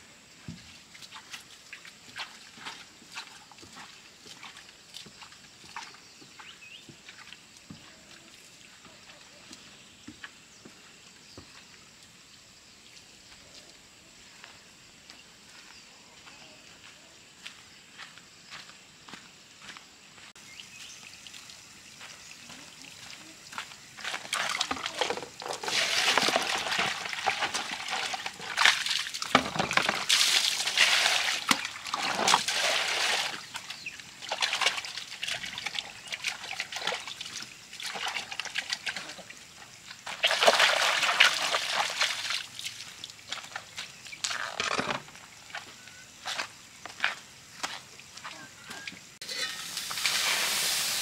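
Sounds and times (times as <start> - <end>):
water tipped onto ground: 24.1 - 35.8
water poured into plastic basin: 24.1 - 39.2, 40.0 - 43.2, 49.4 - 51.0.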